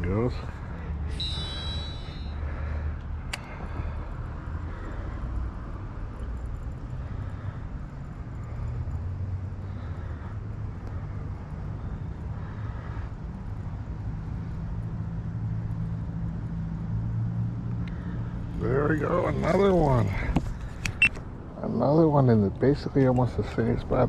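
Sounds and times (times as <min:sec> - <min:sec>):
distant road traffic rumble: 0:00.0 - 0:24.0
fishing reel spool whine: 0:01.1 - 0:02.9.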